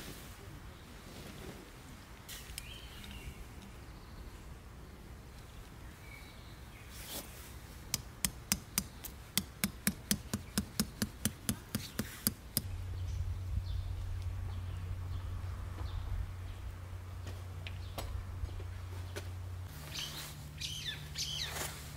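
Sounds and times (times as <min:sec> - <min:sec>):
steady low hum: 0:07.5 - 0:21.9
hammer striking metal tent peg: 0:07.9 - 0:12.7.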